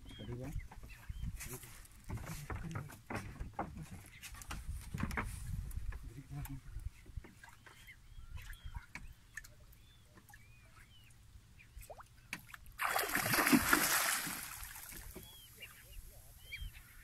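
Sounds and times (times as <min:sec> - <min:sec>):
fish splashing at surface: 0:12.8 - 0:15.2.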